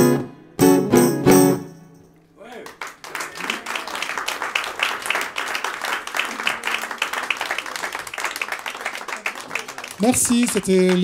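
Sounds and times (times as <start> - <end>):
audience applauding: 2.4 - 11.0.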